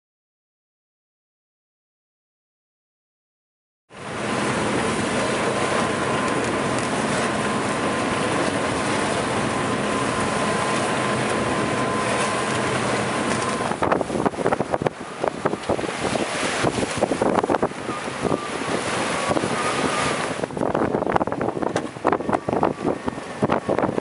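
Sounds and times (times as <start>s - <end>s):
wind and water rushing: 3.9s - 24.0s
wind gusts buffeting microphone: 4.2s - 24.0s
thin steady whistle: 17.8s - 20.2s.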